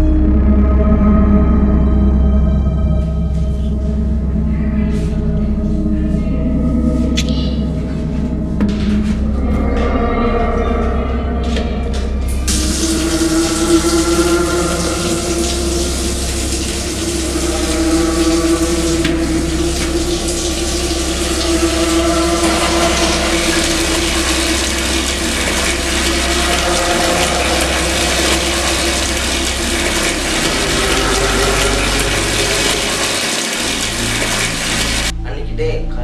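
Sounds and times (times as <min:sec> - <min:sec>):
low hum: 0:00.0 - 0:36.0
water running from a tap: 0:12.4 - 0:35.1.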